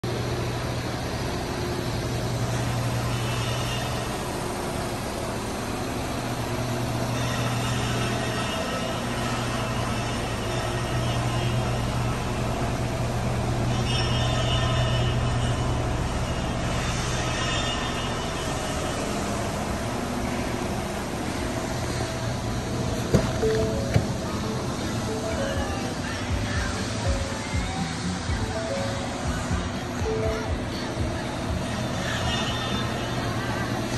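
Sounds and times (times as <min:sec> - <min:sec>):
low mechanical hum: 0:00.0 - 0:33.9.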